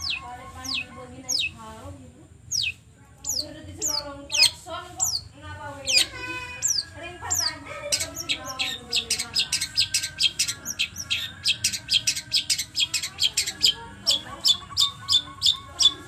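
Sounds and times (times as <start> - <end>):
bird singing rapid high notes: 0.0 - 1.7, 2.5 - 16.0.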